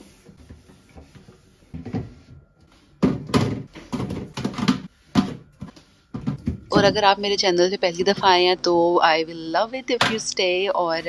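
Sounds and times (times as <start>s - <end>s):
plastic containers knocking on shelves: 3.0s - 5.5s.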